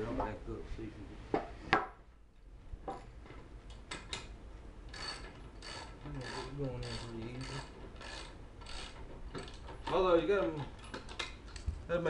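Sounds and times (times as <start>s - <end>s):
ratchet wrench clicking: 4.9s - 9.6s.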